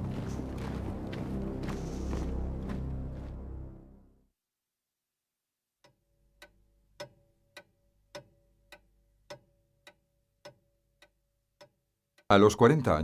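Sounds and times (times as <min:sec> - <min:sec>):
clock ticking: 0:05.8 - 0:13.0.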